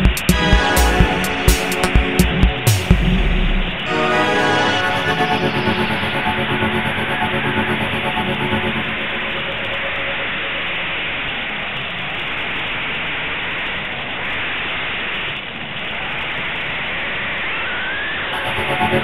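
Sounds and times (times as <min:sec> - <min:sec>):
faint rising whine: 0:02.0 - 0:11.7.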